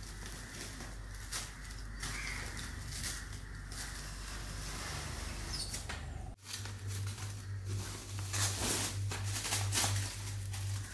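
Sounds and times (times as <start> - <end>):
cling film crinkling and squeaking: 0.0 - 10.9
wrapped bag crackling: 6.4 - 10.9.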